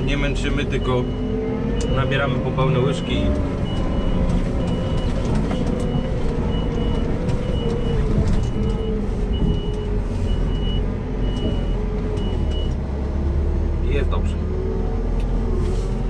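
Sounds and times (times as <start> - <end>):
diesel engine running: 0.0 - 16.0
reversing alarm beeps: 0.8 - 5.2, 5.9 - 12.7.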